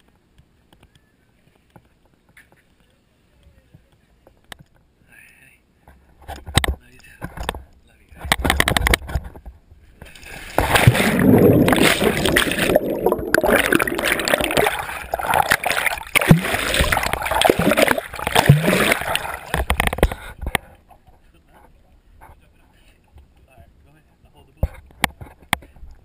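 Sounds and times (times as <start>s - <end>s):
water splashing and gurgling: 10.1s - 20.2s.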